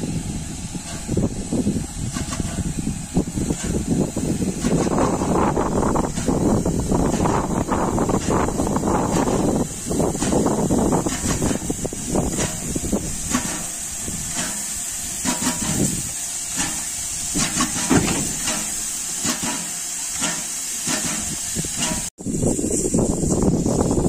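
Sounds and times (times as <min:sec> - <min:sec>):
locomotive exhaust chuffs: 0:00.0 - 0:24.0
steam hissing: 0:00.0 - 0:24.0.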